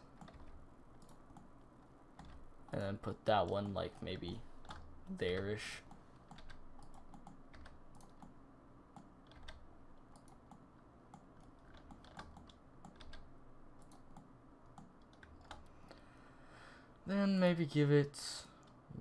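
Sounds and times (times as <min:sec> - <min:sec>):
computer keyboard typing: 0:00.0 - 0:08.4, 0:09.0 - 0:15.7.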